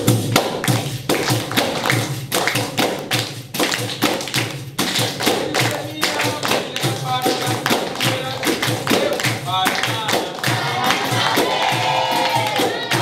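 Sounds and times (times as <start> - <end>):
hand percussion beat: 0.0 - 13.0
voices singing: 8.1 - 13.0.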